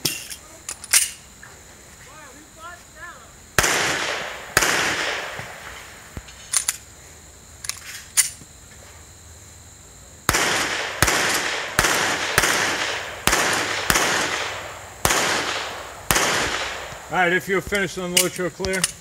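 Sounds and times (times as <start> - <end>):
pistol shots echoing: 3.6 - 5.6, 10.3 - 17.1.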